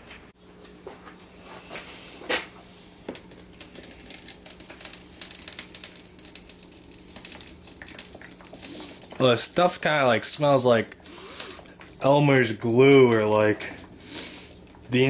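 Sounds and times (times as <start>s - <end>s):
steady low hum: 0.0s - 15.0s
thick liquid pouring and glugging: 3.2s - 15.0s.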